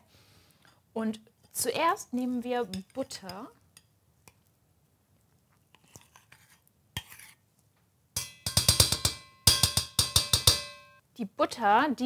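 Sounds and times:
spoon scraping butter: 0:05.3 - 0:07.5.

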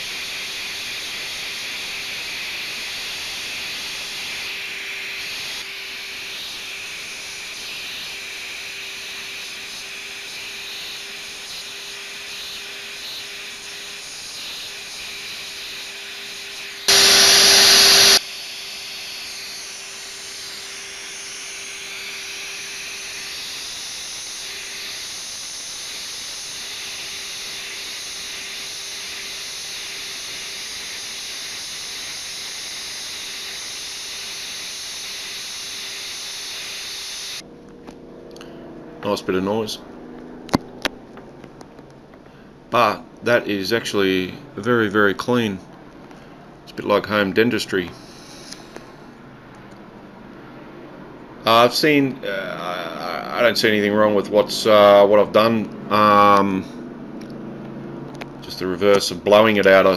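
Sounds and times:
vacuum cleaner running: 0:00.0 - 0:37.5.

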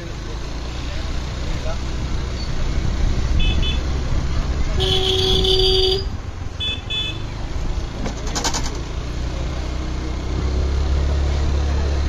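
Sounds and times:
road vehicle rumble: 0:00.0 - 0:12.0
brief clatter: 0:08.0 - 0:08.8.

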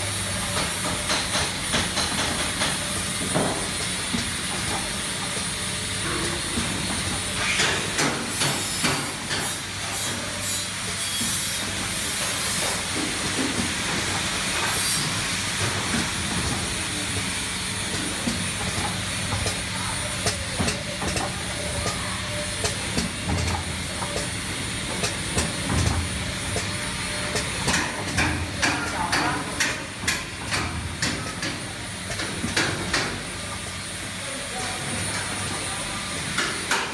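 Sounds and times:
packing machine humming: 0:00.0 - 0:36.4.

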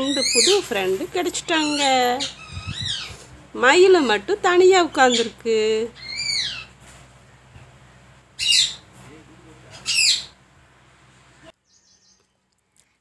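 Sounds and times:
parakeets calling: 0:00.0 - 0:07.1, 0:08.3 - 0:10.4.

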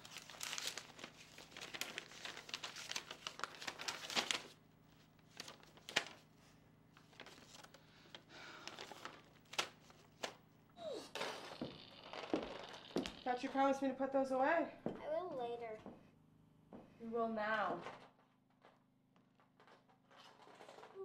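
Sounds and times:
paper rustling and crinkling: 0:00.0 - 0:06.3, 0:06.9 - 0:10.4, 0:19.6 - 0:21.0.

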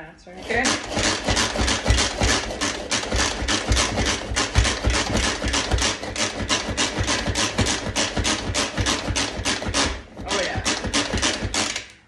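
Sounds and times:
food processor blades chopping onion: 0:00.4 - 0:12.0.

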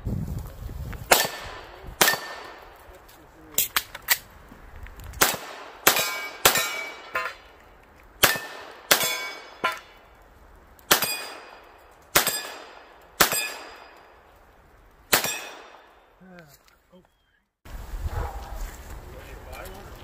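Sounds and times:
pistol shots: 0:01.1 - 0:02.7, 0:05.2 - 0:07.6, 0:08.2 - 0:10.0, 0:10.9 - 0:14.2, 0:15.1 - 0:16.0
metallic ring of steel targets: 0:05.9 - 0:07.4, 0:08.2 - 0:10.0, 0:10.9 - 0:14.1, 0:15.2 - 0:15.8.

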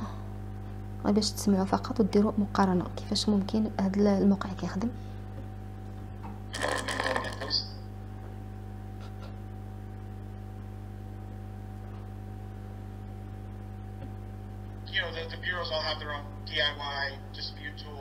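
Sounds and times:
steady electrical hum: 0:00.0 - 0:18.0
person speaking: 0:06.5 - 0:07.8.

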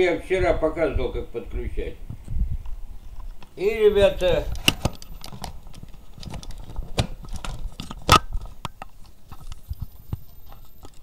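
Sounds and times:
phone handling clicks and rubbing: 0:04.2 - 0:11.0.

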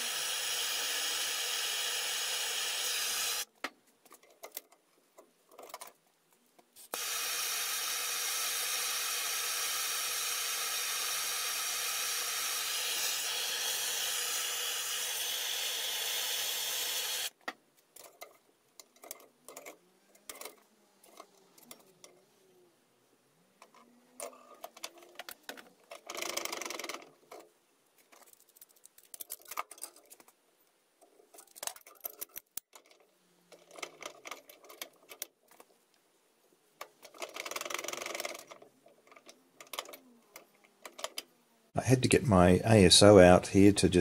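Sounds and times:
gas torch hissing: 0:00.0 - 0:03.5, 0:06.9 - 0:17.3.

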